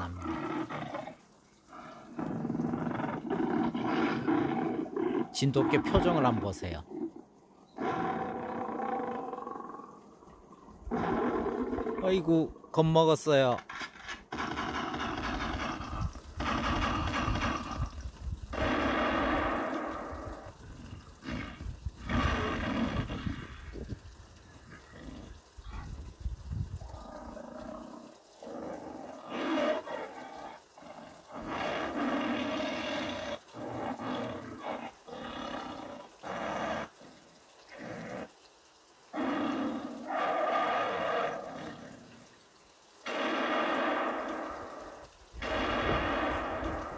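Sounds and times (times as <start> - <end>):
tiger roar through loudspeaker: 1.8 - 6.9.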